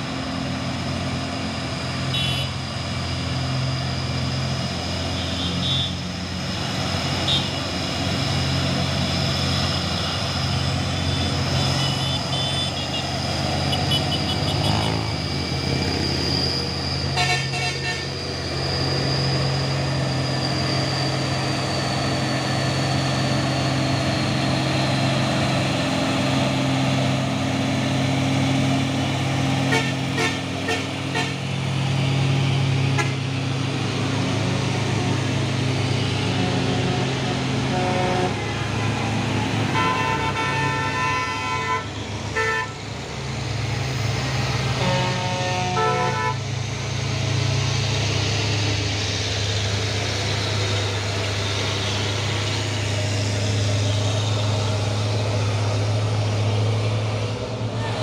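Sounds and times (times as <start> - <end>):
heavy truck engines passing: 0.0 - 58.0
truck horn toots: 2.1 - 2.6, 5.0 - 6.1, 7.2 - 7.8, 10.9 - 15.1, 17.1 - 18.2, 29.6 - 31.6, 32.8 - 33.3, 36.2 - 39.0, 39.6 - 42.8, 44.7 - 46.5.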